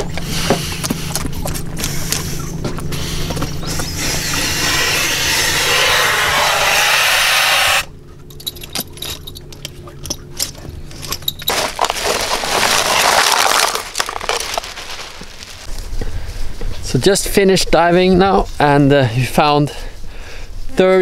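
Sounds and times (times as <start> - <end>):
air hissing from mask: 2.9 - 7.9
dive gear clicks and knocks: 8.2 - 11.9
plastic bag rustling: 10.9 - 15.8.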